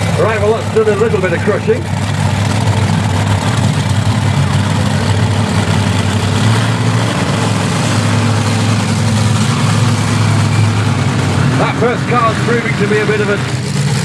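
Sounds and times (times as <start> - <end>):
monster truck engines running: 0.0 - 14.0.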